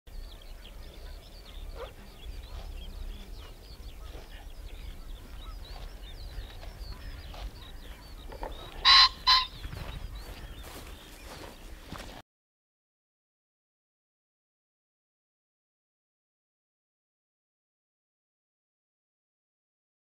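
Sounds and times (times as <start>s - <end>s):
small birds chirping: 0.1s - 12.2s
goose honking: 8.3s - 9.6s.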